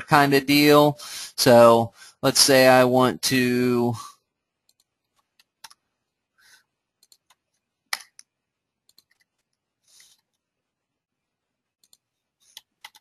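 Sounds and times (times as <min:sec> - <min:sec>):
keyboard and mouse clicking: 0:04.6 - 0:05.8, 0:07.0 - 0:10.4, 0:11.8 - 0:13.0.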